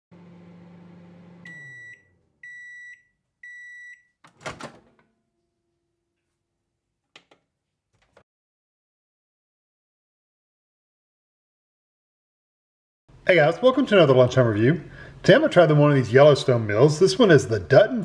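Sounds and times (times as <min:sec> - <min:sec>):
microwave oven hum: 0:00.1 - 0:06.0
microwave high beeps: 0:01.4 - 0:04.2.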